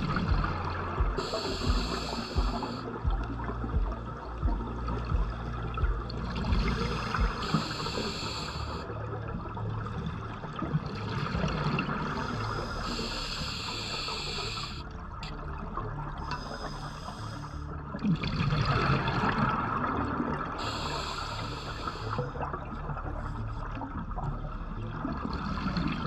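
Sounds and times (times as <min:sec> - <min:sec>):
underwater breath bubbling: 0:00.0 - 0:10.0, 0:10.6 - 0:23.8
steady low hum: 0:00.0 - 0:18.0.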